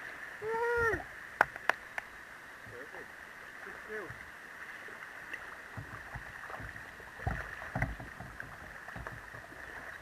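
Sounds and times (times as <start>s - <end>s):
kayak paddle strokes: 0.0s - 10.0s
water slapping against hull: 3.9s - 10.0s
knocks on kayak hull: 5.7s - 9.5s.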